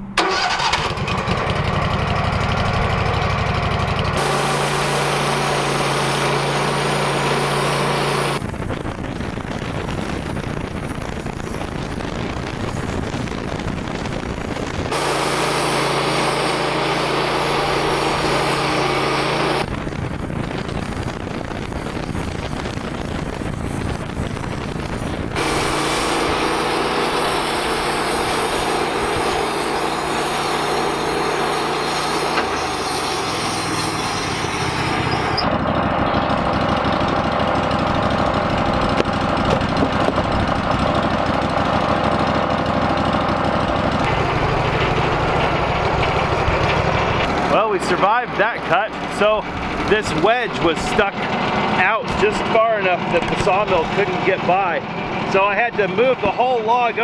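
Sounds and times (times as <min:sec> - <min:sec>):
bandsaw mill cutting log: 0:00.2 - 0:08.4, 0:14.9 - 0:19.7, 0:25.4 - 0:57.0.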